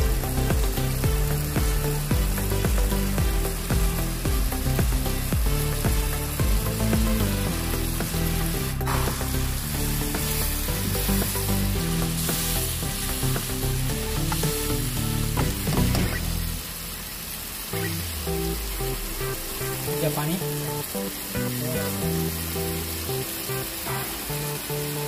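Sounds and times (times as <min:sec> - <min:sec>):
food sizzling in a frying pan: 0:07.6 - 0:15.4, 0:16.2 - 0:25.0.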